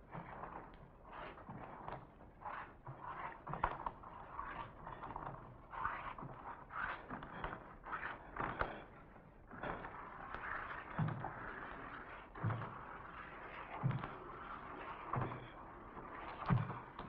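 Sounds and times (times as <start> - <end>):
bare feet stepping on floor: 16.2 - 17.0.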